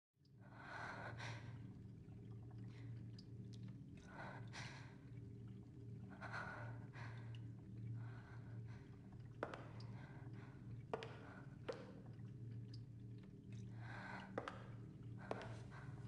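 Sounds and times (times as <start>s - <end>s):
low steady hum: 0.3s - 16.0s.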